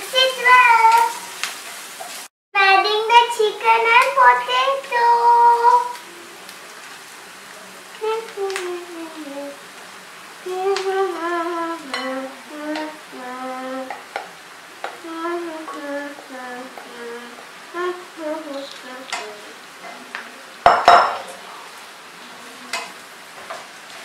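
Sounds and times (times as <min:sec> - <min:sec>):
woman humming: 0:08.0 - 0:09.6, 0:10.5 - 0:14.0, 0:15.0 - 0:19.6
dishes clattering: 0:20.6 - 0:21.4.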